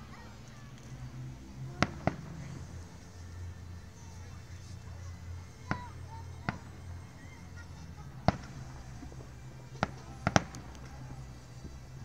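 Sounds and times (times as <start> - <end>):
fireworks bangs: 1.7 - 2.6, 5.6 - 6.8, 8.2 - 11.8.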